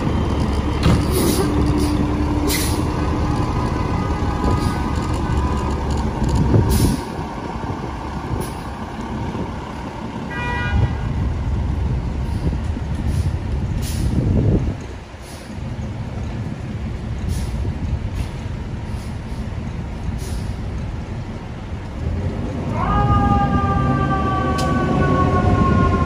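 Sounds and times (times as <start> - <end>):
fire engine diesel rumbling: 0.0 - 26.0
air brake hisses: 6.7 - 7.1, 12.2 - 14.2, 15.2 - 15.5, 20.2 - 20.6.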